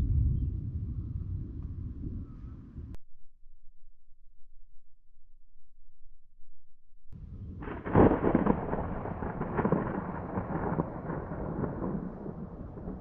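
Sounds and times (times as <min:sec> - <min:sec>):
thunder clap and rumble: 0:00.0 - 0:03.0, 0:07.2 - 0:13.0.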